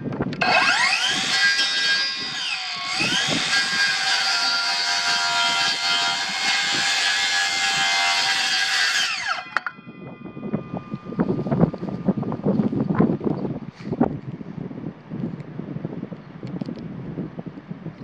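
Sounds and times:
circular saw cutting wood: 0.4s - 12.6s.

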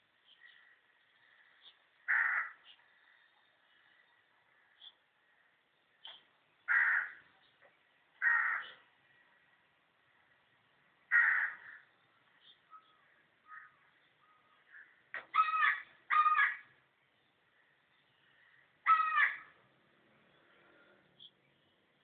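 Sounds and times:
crow cawing: 2.0s - 2.6s, 6.7s - 7.2s, 8.2s - 8.8s, 11.1s - 11.9s, 13.4s - 16.8s, 18.5s - 19.6s.

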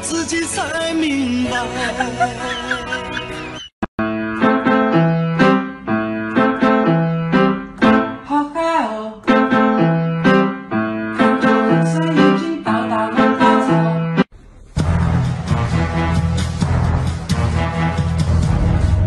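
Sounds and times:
keyboard melody: 0.1s - 8.3s, 9.2s - 14.3s
stepping bass line: 14.8s - 19.0s.

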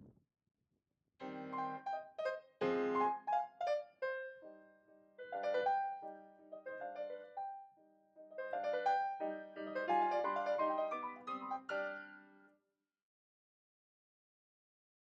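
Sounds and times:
piano notes and chords: 1.2s - 12.5s.

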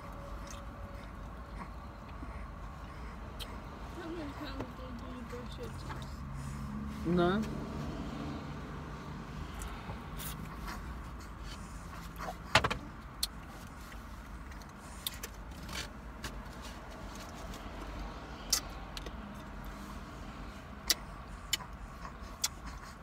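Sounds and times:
low hum inside a car: 0.0s - 23.0s
eating smacks and clicks: 18.5s - 19.4s, 20.8s - 23.0s.

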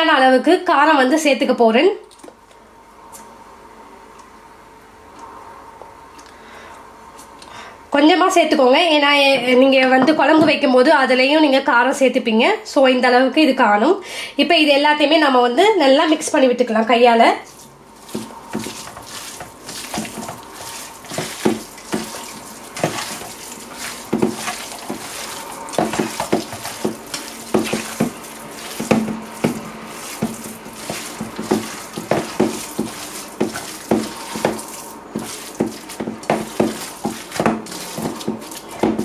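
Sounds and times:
hand squelching minced meat: 17.4s - 39.0s.

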